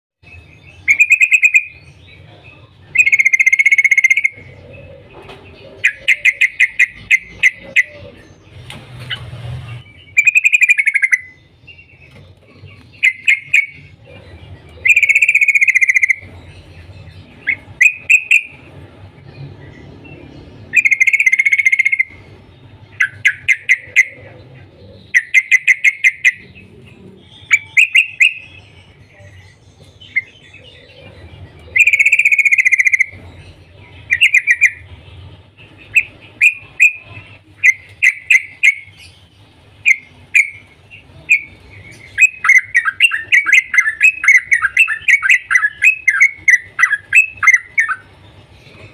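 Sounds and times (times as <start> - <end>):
bird calling: 0.2 - 18.7, 20.1 - 48.9
sharp cuk cuk bird notes: 0.3 - 5.0, 5.7 - 8.4, 9.9 - 18.7, 20.7 - 48.9
bird warbling: 0.8 - 1.8, 2.5 - 8.4, 10.0 - 11.4, 12.1 - 18.6, 20.7 - 22.2, 23.0 - 29.3, 30.0 - 33.3, 35.9 - 39.2, 39.8 - 48.9.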